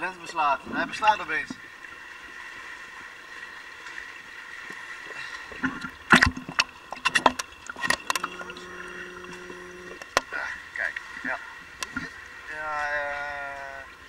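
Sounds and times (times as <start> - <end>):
water splashing and sloshing: 0.0 - 14.0
low steady hum: 4.5 - 14.0.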